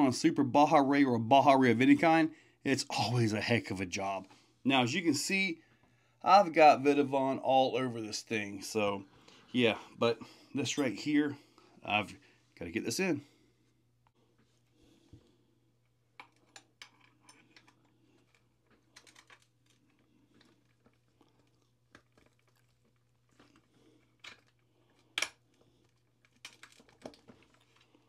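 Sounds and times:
small metal parts clicking and rattling: 16.2s - 28.0s.

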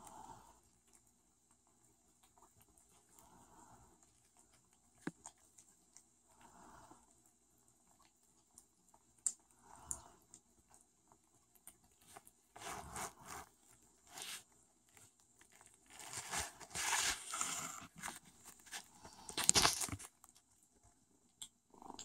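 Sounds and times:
kittens chewing and lapping: 0.0s - 22.0s
fur rubbing on microphone: 12.6s - 13.5s, 14.1s - 14.4s, 15.9s - 18.8s.

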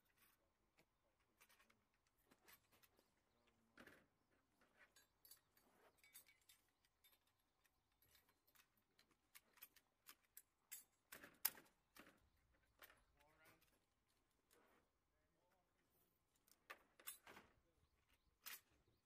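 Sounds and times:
metal gun parts clicking: 5.0s - 12.2s.

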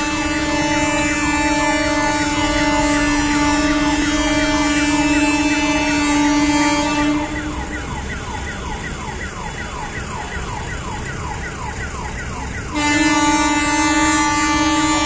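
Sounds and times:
blaring horn: 0.0s - 8.8s, 12.7s - 15.0s
electronic siren wailing: 0.0s - 15.0s.

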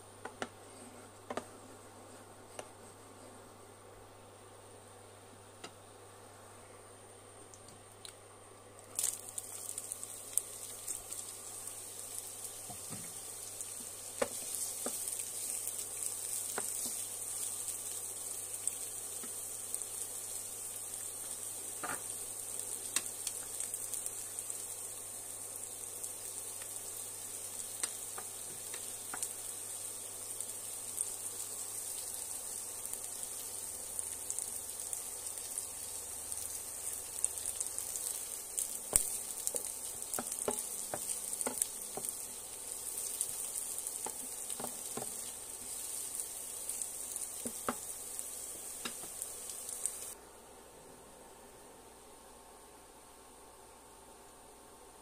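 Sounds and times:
onions sizzling in oil: 8.8s - 50.2s.

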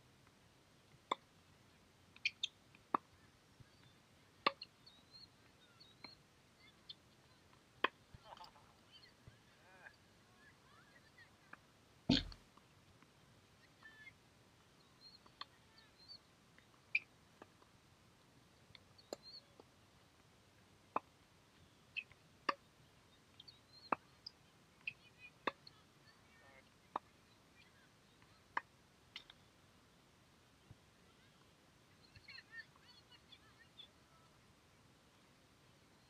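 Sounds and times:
bird chirps: 2.2s - 2.6s, 3.6s - 7.4s, 14.8s - 16.3s, 18.9s - 19.6s, 21.6s - 26.3s, 31.9s - 34.3s
tennis balls bouncing: 12.1s - 12.4s.

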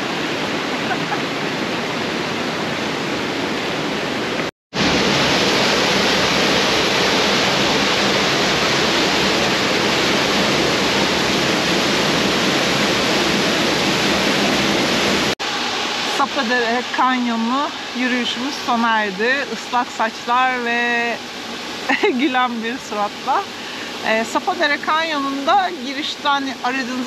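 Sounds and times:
mountain stream rushing: 0.0s - 27.0s
waterfall pouring: 4.7s - 18.7s.

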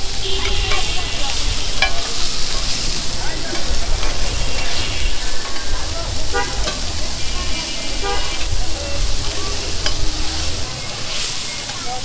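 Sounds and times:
meat sizzling in hot oil: 0.0s - 12.0s.

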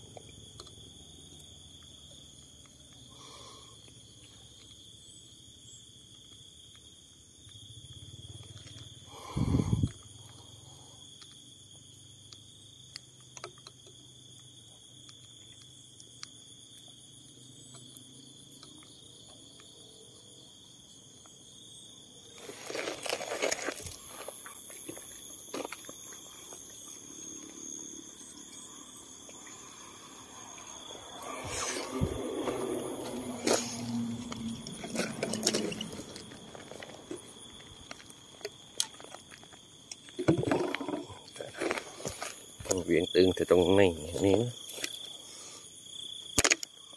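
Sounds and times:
night insects chorus: 0.0s - 46.9s
plastic bottles knocking together: 40.2s - 42.2s.

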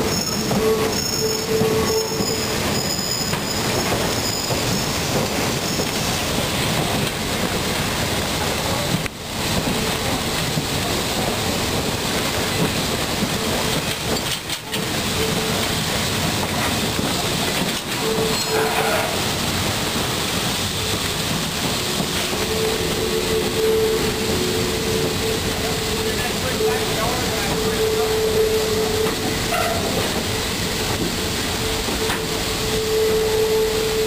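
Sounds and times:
train wheels rumbling on rails: 0.0s - 34.0s
thin wheel squeal: 0.1s - 5.9s.

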